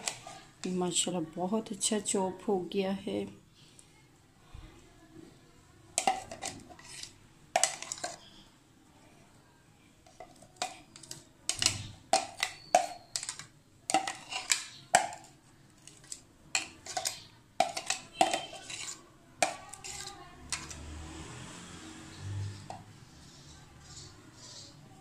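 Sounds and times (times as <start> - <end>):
metal spoon clinking on bowls: 0.0 - 0.8, 6.0 - 8.4, 10.1 - 20.8
spoon stirring salad: 0.0 - 1.0, 5.9 - 8.4, 10.0 - 20.9.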